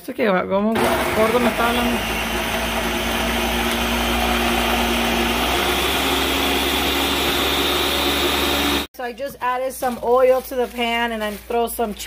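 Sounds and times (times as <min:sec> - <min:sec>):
blender motor whirring: 0:00.7 - 0:08.9.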